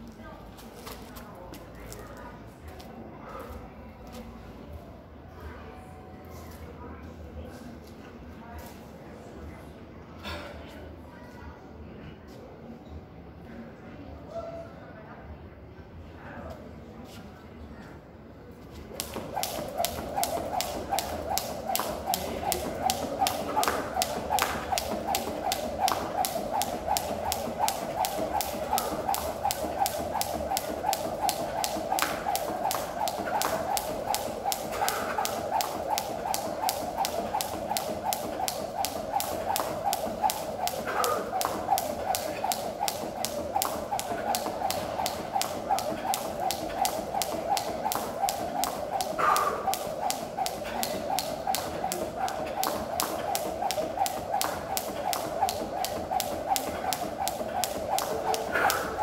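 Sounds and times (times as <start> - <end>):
jump rope slapping concrete: 18.9 - 59.0.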